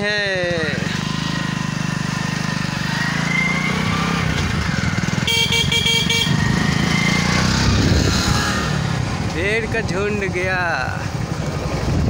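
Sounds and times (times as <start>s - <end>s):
vehicle engine running: 0.0s - 12.0s
horn beeping: 5.0s - 6.8s.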